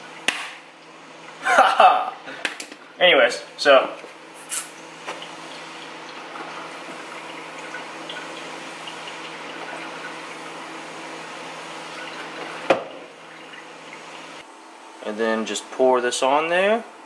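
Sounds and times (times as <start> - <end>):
liquid pouring into a cup: 4.7 - 14.4.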